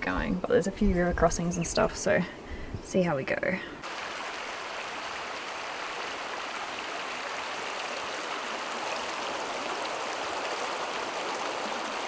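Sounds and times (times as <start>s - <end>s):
creek water running over rocks: 3.8s - 12.0s.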